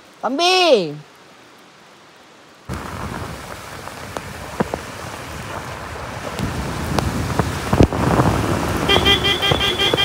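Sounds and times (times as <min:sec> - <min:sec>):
tyres on wet road: 0:00.0 - 0:10.0
wind on microphone: 0:02.7 - 0:10.0.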